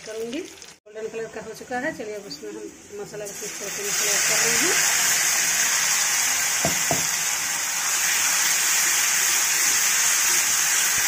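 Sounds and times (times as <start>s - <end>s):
paste sizzling in hot oil: 3.2s - 11.0s.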